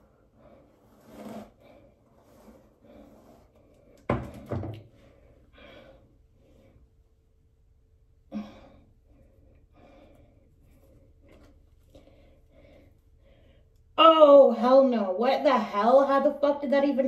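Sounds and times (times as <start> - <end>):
person breathing hard and sighing: 8.3 - 11.2.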